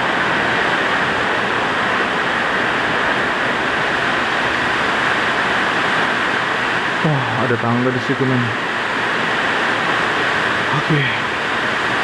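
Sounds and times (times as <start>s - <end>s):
heavy rain falling: 0.0s - 12.0s.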